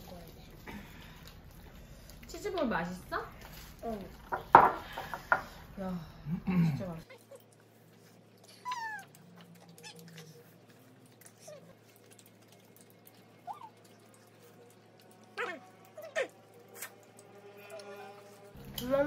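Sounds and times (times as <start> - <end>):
faint eating clicks: 0.0 - 5.3, 7.0 - 19.0.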